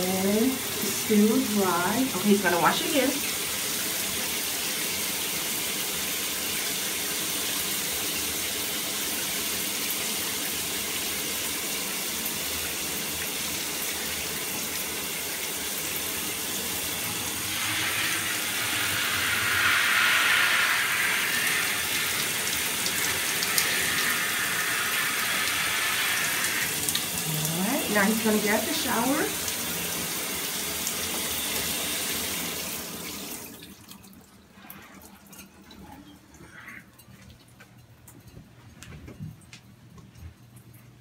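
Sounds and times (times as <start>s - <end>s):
shower spray splashing: 13.9s - 33.5s.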